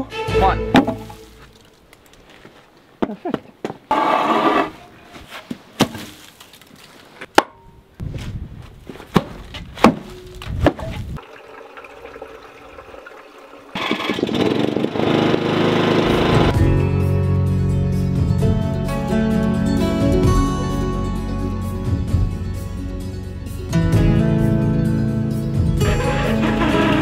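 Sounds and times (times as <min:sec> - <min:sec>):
timber scraping: 0:03.9 - 0:07.3.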